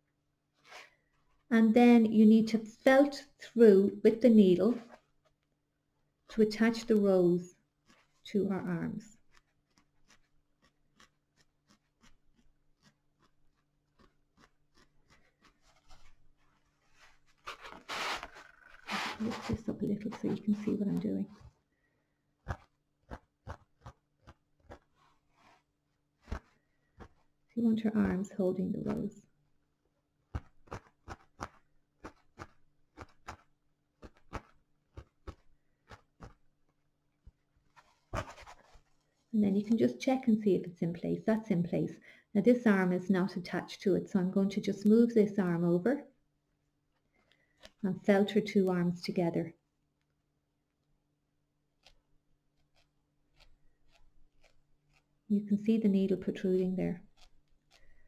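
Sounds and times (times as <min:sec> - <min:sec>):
felting needle scratchy pokes: 0:06.3 - 0:21.6, 0:22.4 - 0:29.3, 0:30.2 - 0:38.9, 0:47.0 - 0:49.2, 0:51.7 - 0:58.0
felting needle soft taps: 0:26.2 - 0:29.2.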